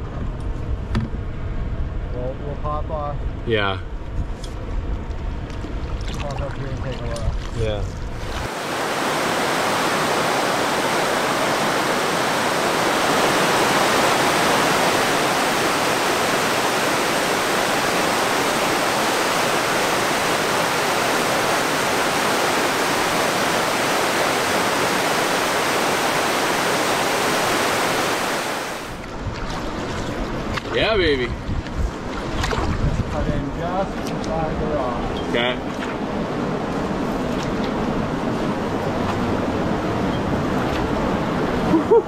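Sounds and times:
river rapids rushing: 8.2 - 29.0.

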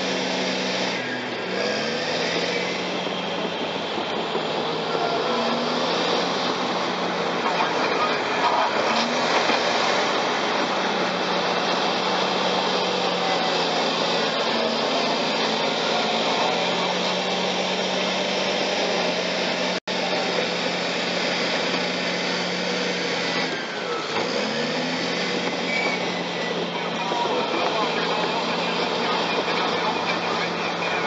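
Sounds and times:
bulldozer diesel engine under load: 0.0 - 31.0.

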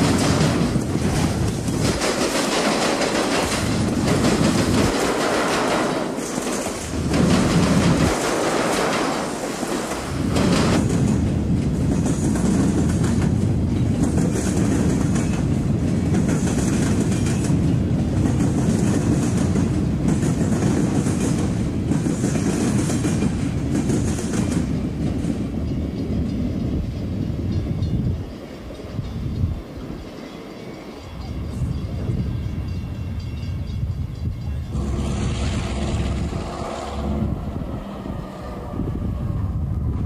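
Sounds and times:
train cars clattering: 0.0 - 38.6
train wheels rumbling on rail: 0.0 - 40.0.

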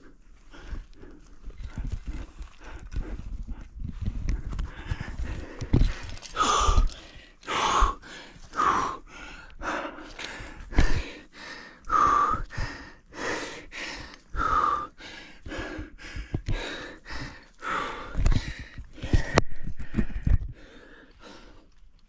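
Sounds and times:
person breathing hard: 0.0 - 22.0.

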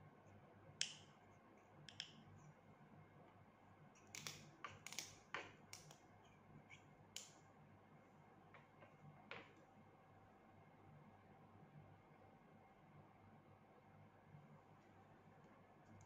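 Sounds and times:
low room hum: 0.0 - 16.0
pliers clicking on wire: 4.0 - 6.0.

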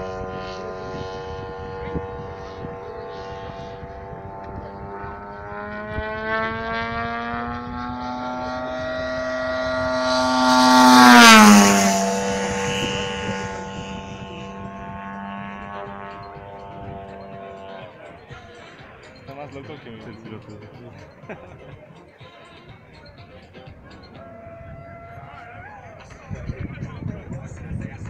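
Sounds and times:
model airplane engine flyby: 0.0 - 19.3.

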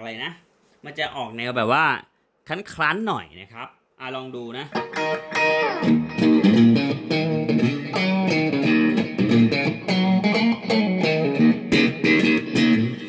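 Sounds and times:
electric guitar picked notes: 4.8 - 13.0.

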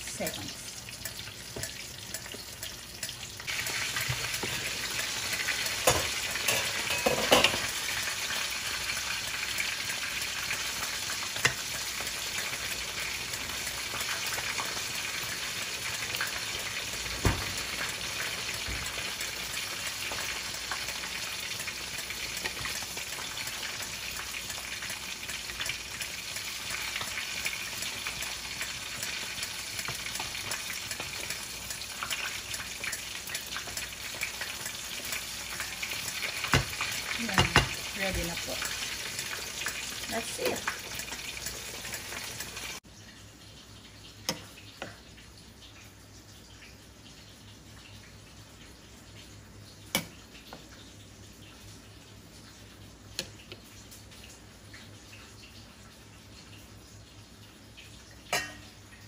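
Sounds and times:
soup boiling in a pot: 0.0 - 59.0.

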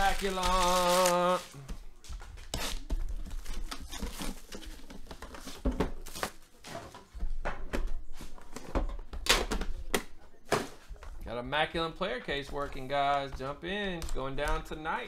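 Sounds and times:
plastic wrap crinkling and tearing: 0.0 - 1.6.

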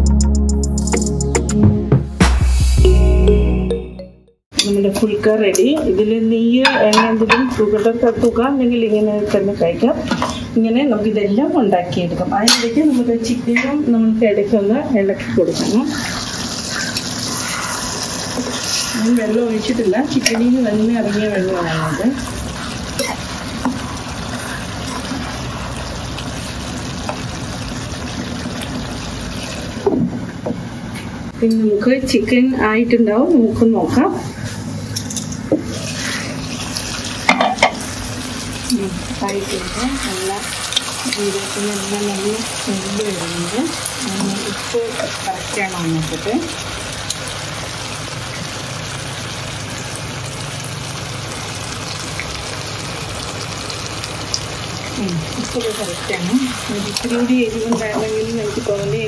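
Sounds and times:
chicken sizzling in a pan: 15.5 - 29.9, 35.7 - 59.0.

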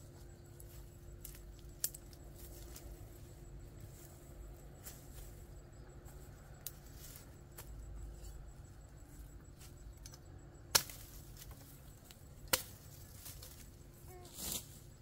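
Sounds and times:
machete chopping stalks: 10.7 - 11.8, 12.4 - 13.6.

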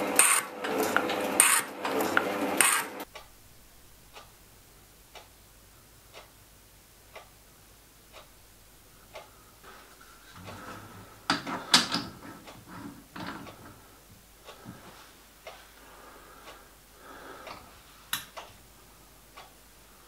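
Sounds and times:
metal shaping machine cutting: 0.0 - 3.0
clock ticking: 2.6 - 20.0.

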